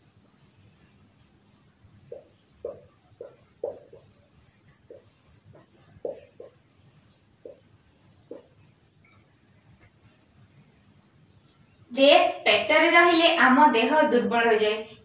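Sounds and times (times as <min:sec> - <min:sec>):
marker pen writing on whiteboard: 0:00.0 - 0:11.8.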